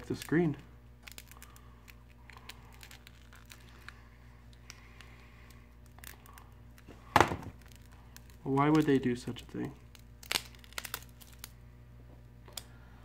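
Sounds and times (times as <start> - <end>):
cracked glass crackling and ticking: 1.0 - 3.8, 7.6 - 8.4, 9.8 - 11.5.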